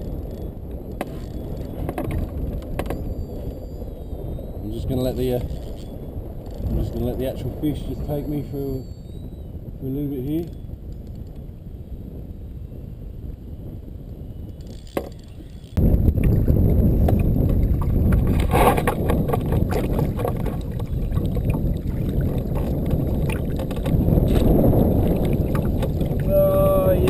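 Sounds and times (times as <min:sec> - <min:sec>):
muffled rumble of sloshing water: 0:00.0 - 0:12.4, 0:15.4 - 0:27.0
knocks and splashes: 0:16.1 - 0:26.3.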